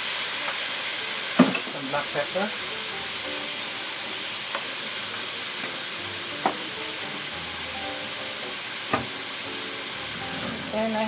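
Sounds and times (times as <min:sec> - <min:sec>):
food sizzling in a pan: 0:00.0 - 0:11.0
utensil tapping a pan: 0:05.6 - 0:07.2, 0:08.9 - 0:09.3.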